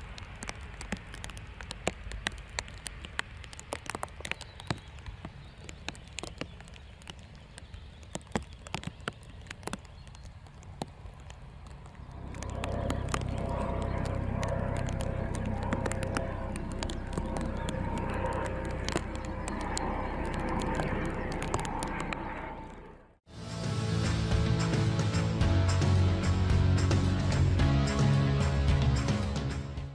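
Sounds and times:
rain pattering: 0.0s - 22.8s
jet engines rumbling and whining: 8.2s - 28.8s.

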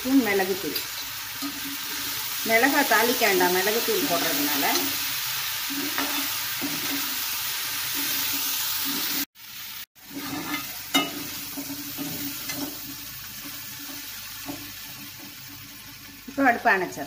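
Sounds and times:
food sizzling in pan: 0.0s - 17.0s
ladle scraping pan: 10.0s - 15.5s.

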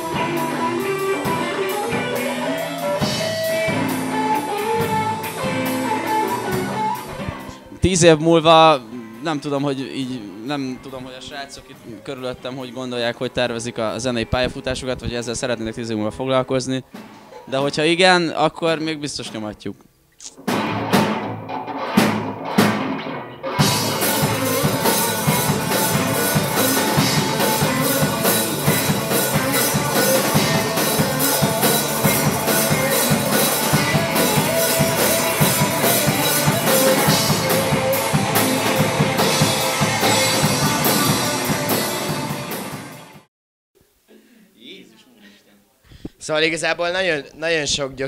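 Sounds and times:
rock band playing: 0.0s - 11.9s, 20.4s - 43.3s.

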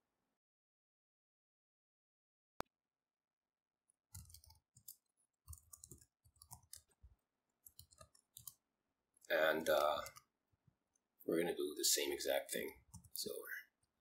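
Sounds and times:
keyboard keystrokes: 4.2s - 6.9s.

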